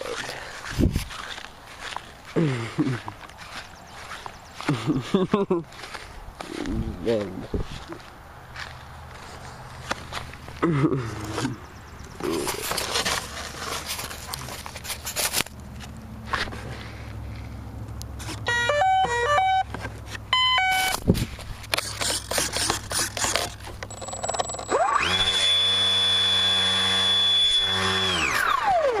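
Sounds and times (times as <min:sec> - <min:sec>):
stepped beeps through motor: 0:18.5 - 0:19.7, 0:20.3 - 0:21.0, 0:23.8 - 0:28.8
electric motor whining: 0:21.8 - 0:29.0.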